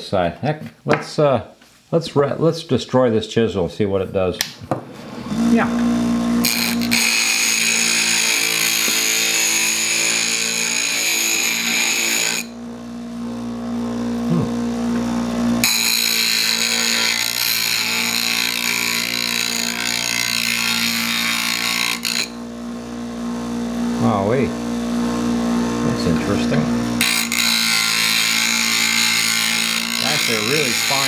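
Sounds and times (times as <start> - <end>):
grinder motor humming: 5.0 - 31.0
chisel grinding on stone: 6.4 - 12.6, 15.6 - 22.4, 27.0 - 31.0.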